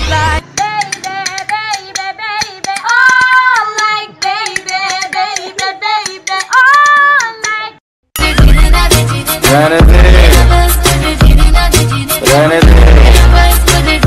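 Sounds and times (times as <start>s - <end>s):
high-pitched voice singing: 0.0s - 9.2s
sharp percussive clicks: 0.5s - 7.7s.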